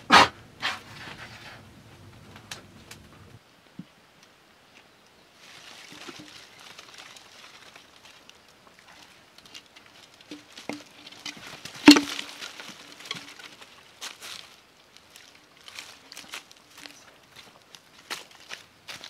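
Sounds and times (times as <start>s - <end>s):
rustling and scraping on dry leaves: 5.3s - 19.0s.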